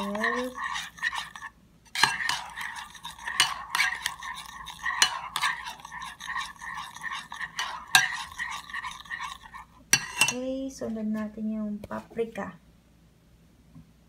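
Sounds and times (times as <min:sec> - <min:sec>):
spoon clinking bowl: 0:00.0 - 0:10.4
spoon scraping bowl: 0:00.0 - 0:10.4.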